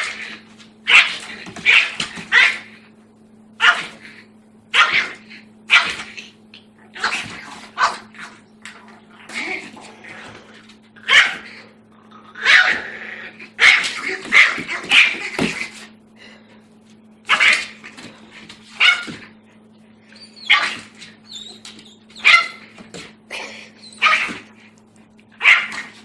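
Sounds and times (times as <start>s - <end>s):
puppy barking and yapping: 0.0s - 2.8s, 3.6s - 4.0s, 4.7s - 6.2s, 7.0s - 8.4s, 11.0s - 11.6s, 13.6s - 15.6s, 18.6s - 19.3s, 20.2s - 23.1s, 23.8s - 24.6s, 25.4s - 26.0s.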